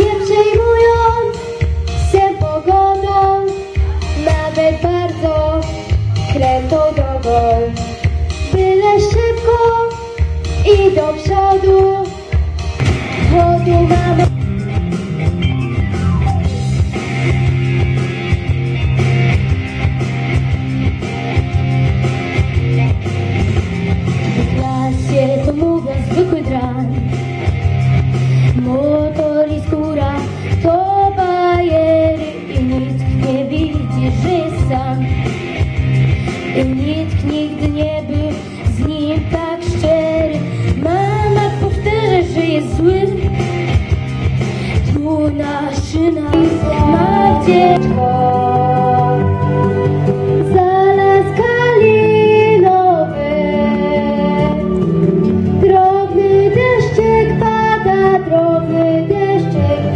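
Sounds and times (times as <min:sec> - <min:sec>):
boy singing into microphone: 0:00.0 - 0:07.8, 0:08.5 - 0:12.3, 0:13.3 - 0:14.3, 0:24.4 - 0:27.0, 0:28.5 - 0:35.1, 0:36.6 - 0:43.2, 0:44.8 - 0:54.8, 0:55.6 - 0:59.9
backing track over pa system: 0:46.1 - 0:52.1.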